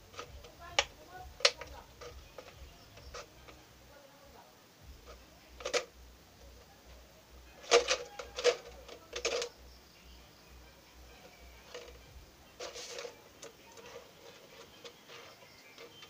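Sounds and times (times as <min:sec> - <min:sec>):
scissors snipping plastic bottle: 0:00.1 - 0:03.3.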